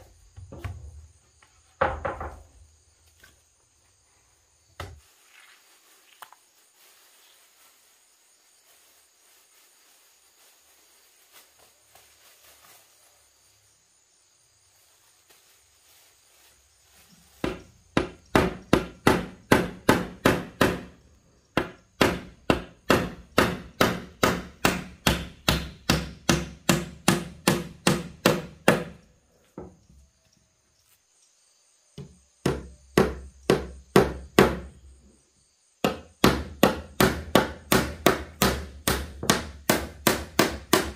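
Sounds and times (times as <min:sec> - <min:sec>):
sharp blows on wood: 0:17.4 - 0:29.0, 0:32.0 - 0:34.8, 0:35.8 - 0:40.9.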